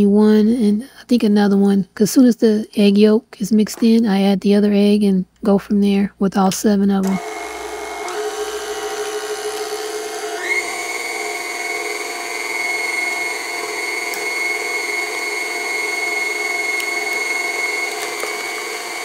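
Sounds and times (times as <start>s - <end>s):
stand mixer whining: 7.1s - 19.0s.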